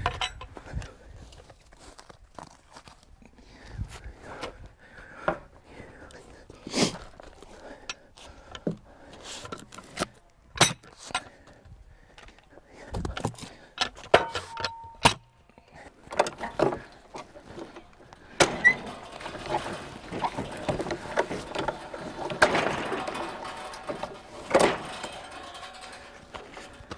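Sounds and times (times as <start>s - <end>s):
knocks and clunks of log handling: 7.0s - 26.9s
rattling clicking saw head: 18.1s - 26.9s.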